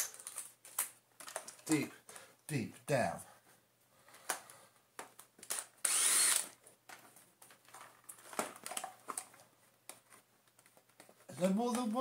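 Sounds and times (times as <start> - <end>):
screwdriver clicking and scraping: 5.5 - 6.6.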